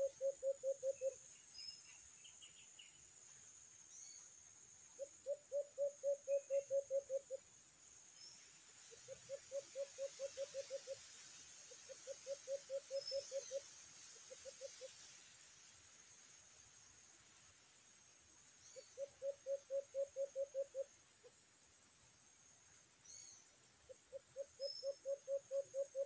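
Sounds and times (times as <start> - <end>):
dove cooing: 0.0 - 1.2, 5.2 - 7.4, 9.1 - 11.0, 12.0 - 13.6, 19.0 - 20.9, 24.1 - 26.0.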